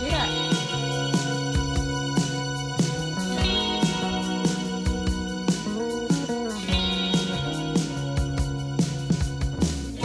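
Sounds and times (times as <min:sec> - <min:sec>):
electric guitar with bass and beat: 0:00.0 - 0:10.0.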